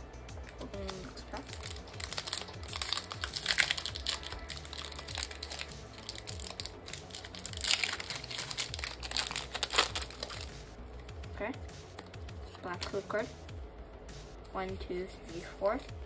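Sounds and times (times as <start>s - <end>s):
foil wrapper tearing and crinkling: 0.5s - 10.6s.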